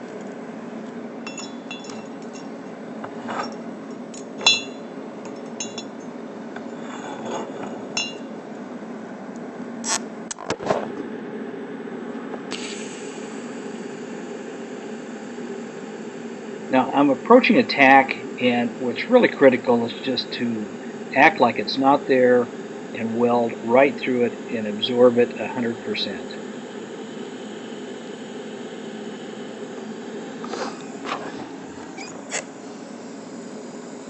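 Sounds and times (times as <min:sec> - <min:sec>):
steady low hum: 0:00.0 - 0:34.0
steel pieces clinking on metal table: 0:01.3 - 0:02.5, 0:04.2 - 0:06.0, 0:07.1 - 0:08.2
welding arc hissing: 0:12.5 - 0:33.7.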